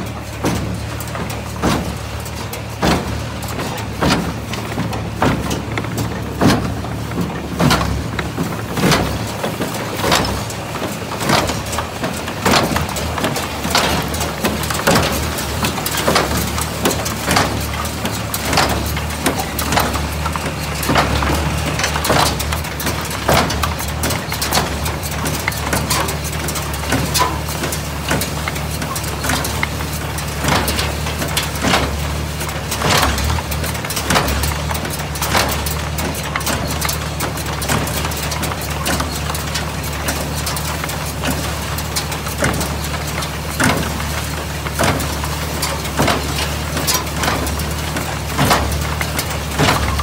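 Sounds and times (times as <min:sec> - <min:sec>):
hay baler running: 0:00.0 - 0:50.0.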